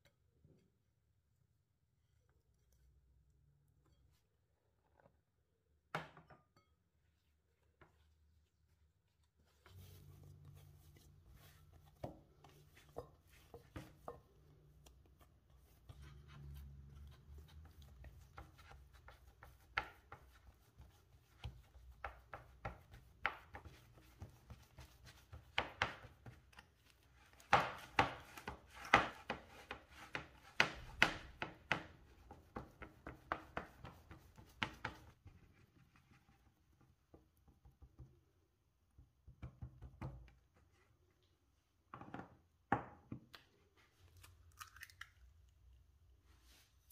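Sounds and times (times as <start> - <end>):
hands kneading dough: 7.2 - 46.9
hands patting dough in tin: 9.1 - 38.2.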